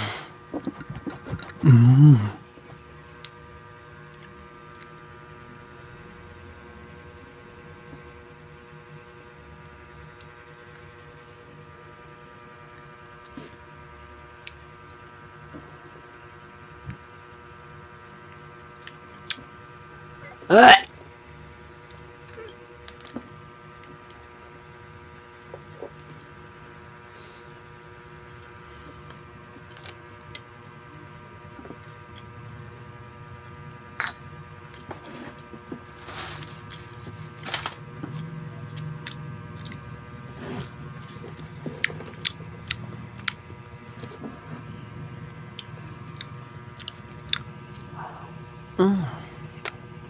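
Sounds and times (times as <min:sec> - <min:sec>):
electrical hum: 0:00.0 - 0:50.0
soft eating clicks and smacks: 0:04.0 - 0:05.1, 0:12.7 - 0:15.2, 0:18.0 - 0:19.8, 0:38.0 - 0:39.9, 0:40.6 - 0:44.3, 0:45.6 - 0:47.9.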